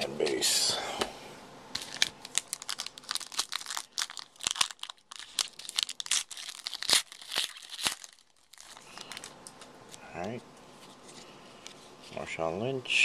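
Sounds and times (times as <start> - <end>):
foil wrapper crinkling: 1.7 - 10.0.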